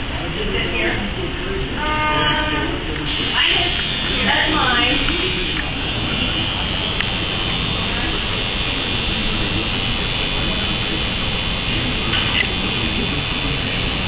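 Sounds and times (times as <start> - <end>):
tattoo machine buzzing: 3.0 - 14.0.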